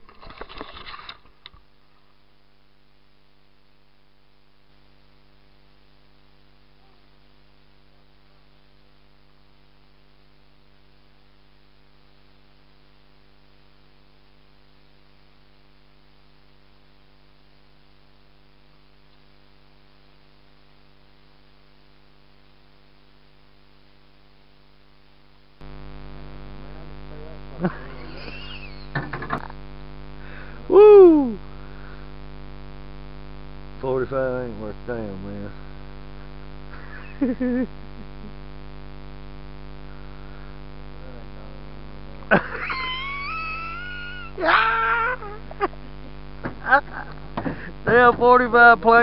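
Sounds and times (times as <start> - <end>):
electric hum: 0.0 - 49.0
man whooping: 30.6 - 31.5, 42.6 - 45.5.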